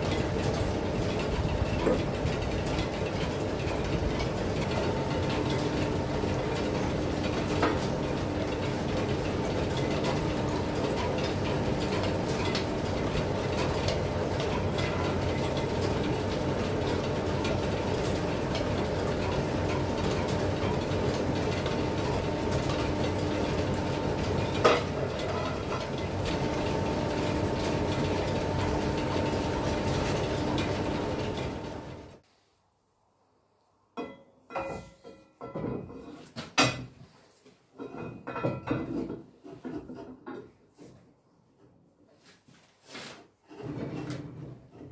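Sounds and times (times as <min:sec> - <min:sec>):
metal lathe gears clattering: 0:00.0 - 0:32.2.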